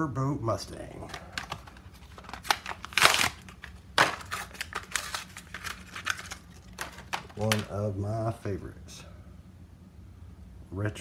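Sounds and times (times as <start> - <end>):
plastic packaging crinkling and tearing: 1.0 - 7.7.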